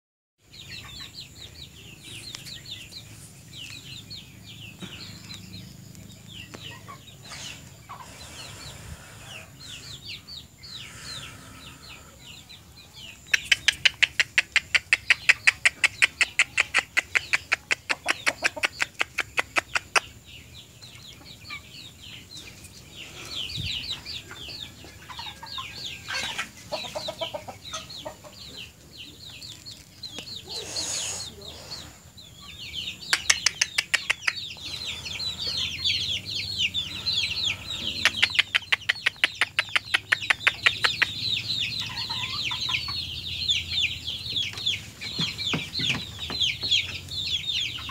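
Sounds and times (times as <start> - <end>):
chickens clucking: 0.4 - 47.9.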